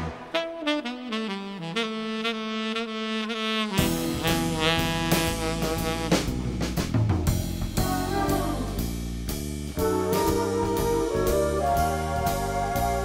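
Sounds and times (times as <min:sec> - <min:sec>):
held horn note: 0:00.0 - 0:06.5, 0:07.8 - 0:09.0
jazz band with drums and bass: 0:00.0 - 0:13.0.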